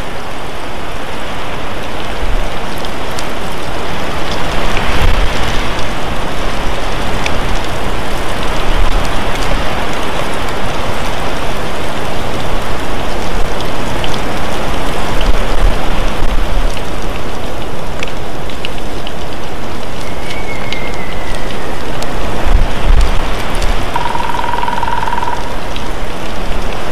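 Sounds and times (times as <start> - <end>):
loud steady microphone noise: 19.5 - 26.9.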